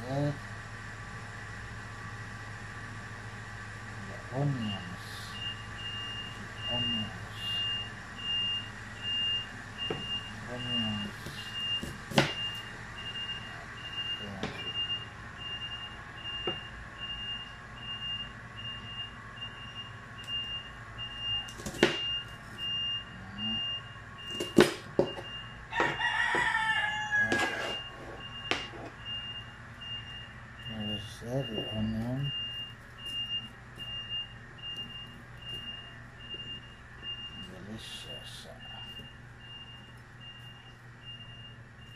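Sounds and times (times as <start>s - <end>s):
rooster crowing: 25.7s - 28.1s.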